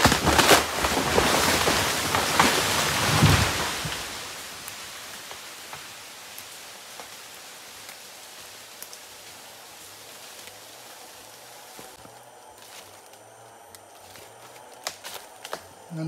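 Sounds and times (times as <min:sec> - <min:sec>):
tree crashing to the ground: 0:00.0 - 0:10.5
leaves and twigs pattering down: 0:00.0 - 0:16.0.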